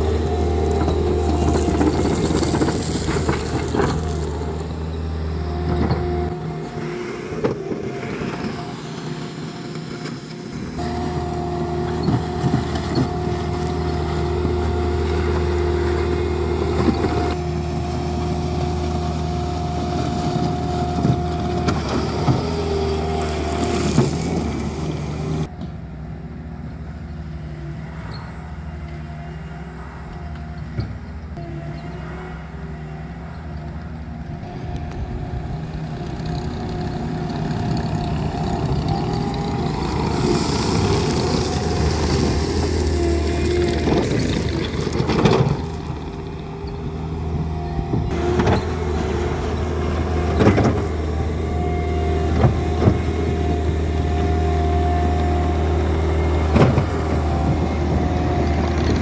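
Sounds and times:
loader bucket clanking: 0.0s - 6.6s, 36.1s - 59.0s
diesel engine running: 0.0s - 59.0s.

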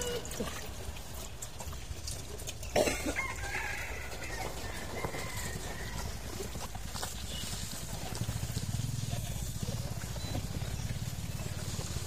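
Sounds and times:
small engine running: 4.3s - 12.0s.

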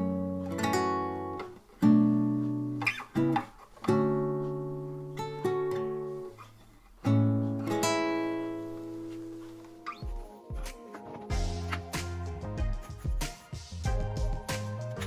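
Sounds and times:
classical guitar chords ringing: 0.0s - 6.4s, 7.0s - 10.1s.

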